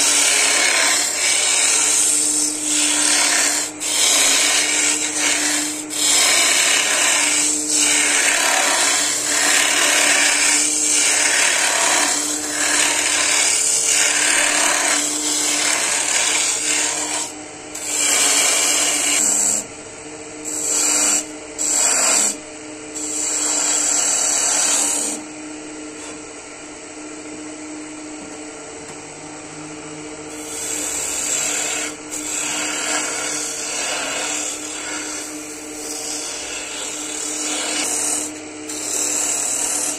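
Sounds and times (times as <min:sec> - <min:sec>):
turning tool cutting spinning wood: 0:00.0 - 0:19.7, 0:20.4 - 0:22.4, 0:23.0 - 0:25.3, 0:30.3 - 0:39.9
wood lathe motor humming: 0:00.0 - 0:19.8, 0:20.4 - 0:25.3, 0:30.3 - 0:39.9.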